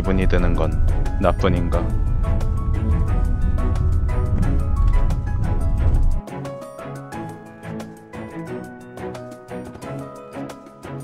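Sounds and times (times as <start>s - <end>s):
car driving rumble: 0.0s - 6.2s
background music with steady beat: 0.0s - 11.0s.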